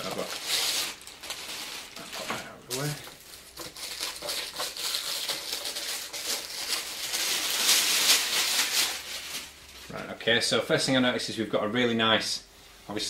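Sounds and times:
plastic wrapping rustling and crinkling: 0.0s - 10.2s.

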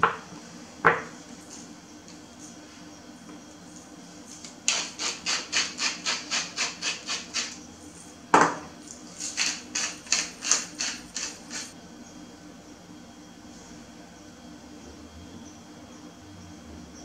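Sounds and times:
grinder knocking on wooden board: 0.8s - 1.2s, 8.3s - 8.7s
spice grinder rasping: 4.2s - 8.1s, 8.8s - 11.8s.

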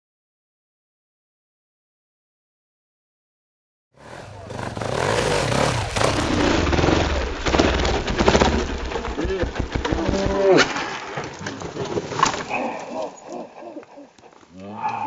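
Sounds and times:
motorcycle engine running low: 4.0s - 10.2s
motorcycle hitting ground: 4.0s - 11.4s.

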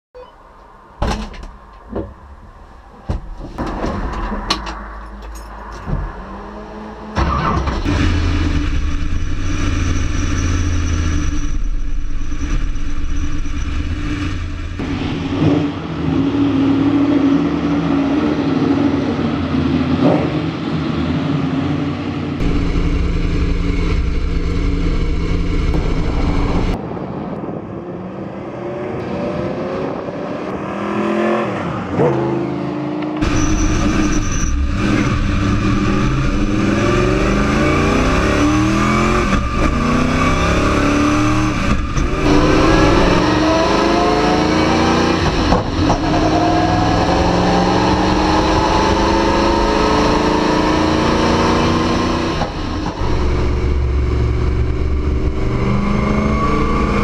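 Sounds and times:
race car engine revving: 5.8s - 21.0s, 21.8s - 26.8s, 28.4s - 57.0s
race car engine running loudly: 22.3s - 26.8s, 33.2s - 57.0s.

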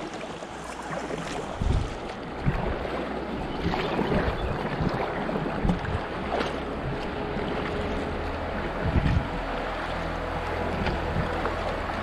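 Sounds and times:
river water rushing: 0.0s - 12.0s
low thumps: 8.7s - 9.4s.

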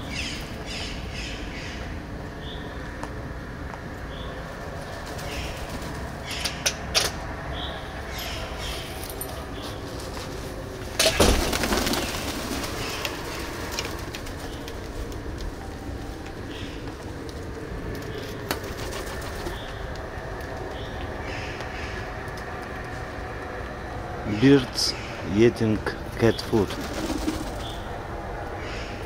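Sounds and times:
wing flapping: 11.0s - 15.5s, 18.0s - 20.0s, 26.5s - 27.9s.

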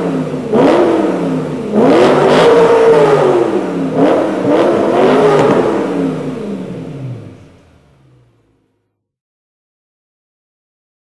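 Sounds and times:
car engine revving: 0.0s - 8.8s.

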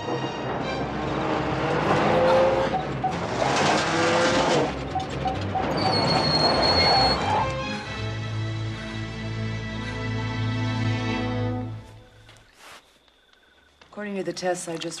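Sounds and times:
music: 0.0s - 3.3s, 4.1s - 12.2s
vehicle engine driving: 0.2s - 8.3s.

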